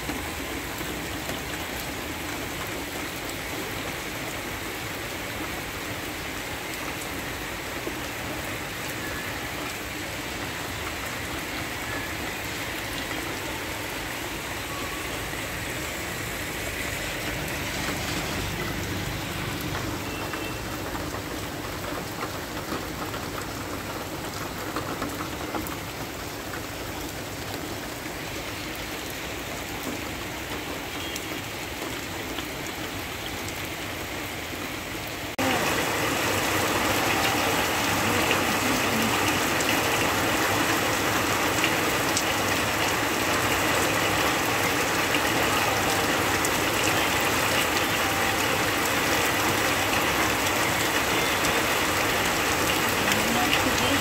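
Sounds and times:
heavy rain on wet ground: 0:00.0 - 0:54.0.

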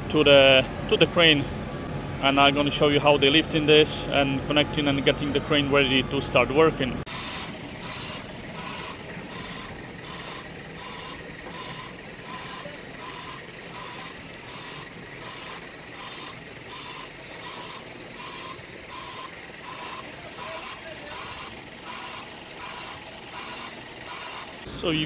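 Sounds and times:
vehicle reversing alarm beeping: 0:07.1 - 0:25.0.

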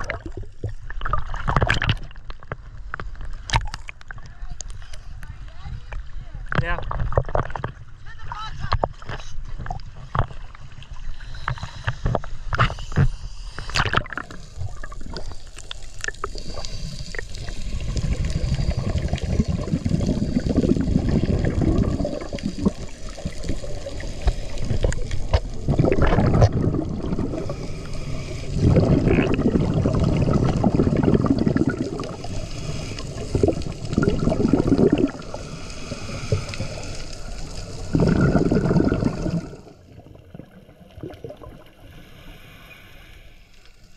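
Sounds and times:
regulator bubbles gurgling: 0:00.0 - 0:04.2, 0:11.5 - 0:42.1
water splashing: 0:00.0 - 0:04.8, 0:05.5 - 0:43.4
low rush of water: 0:13.6 - 0:43.4.

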